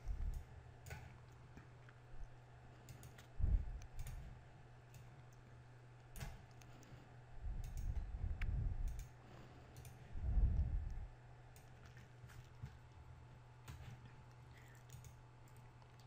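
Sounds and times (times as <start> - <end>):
faint low hum: 0.0 - 16.0
computer mouse clicks: 2.8 - 5.5, 6.1 - 7.0, 7.6 - 10.0, 10.8 - 12.6, 13.7 - 16.0
low rumbling: 3.4 - 4.0, 10.1 - 11.2.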